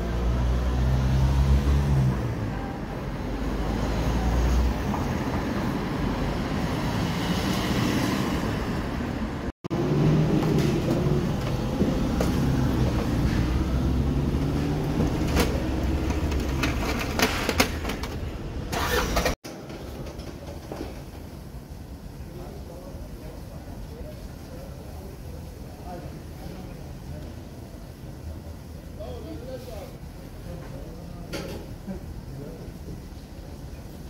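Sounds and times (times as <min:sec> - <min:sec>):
city street traffic: 0:00.0 - 0:34.0
vehicle engine droning: 0:09.7 - 0:19.4
sharp clicks and knocks: 0:15.0 - 0:18.4.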